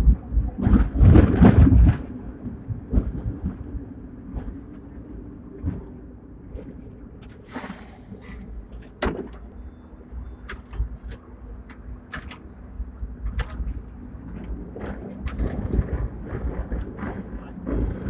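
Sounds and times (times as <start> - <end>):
tram running rumble: 0.0 - 18.0
brief hiss: 7.4 - 8.5
clicks and knocks from tram body: 8.7 - 9.6, 10.4 - 18.0.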